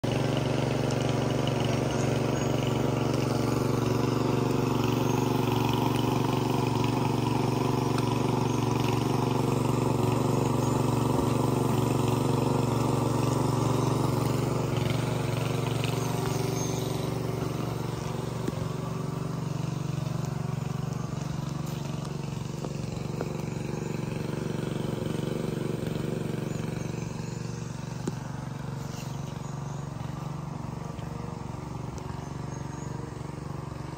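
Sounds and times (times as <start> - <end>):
small engine humming: 0.0 - 33.9.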